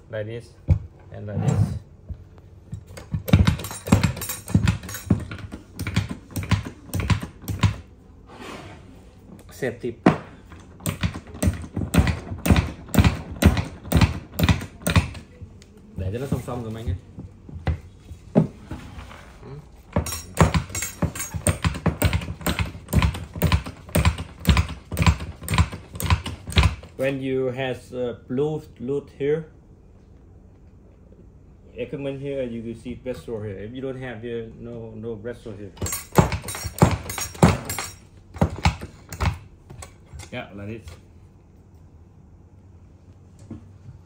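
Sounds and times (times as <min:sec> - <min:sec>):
metal tools clicking and knocking: 0:02.7 - 0:07.8, 0:19.9 - 0:26.9, 0:35.8 - 0:40.4.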